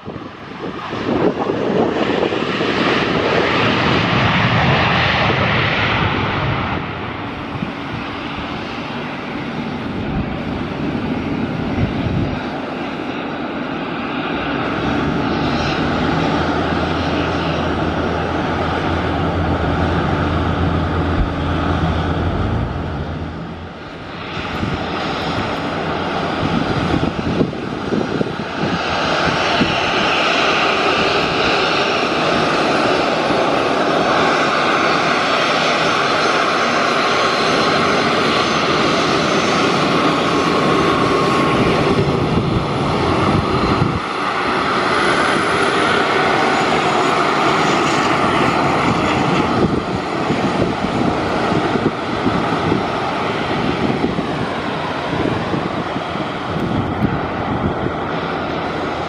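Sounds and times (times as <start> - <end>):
jet engines whining: 0.0 - 59.0
low rumble: 15.8 - 25.8.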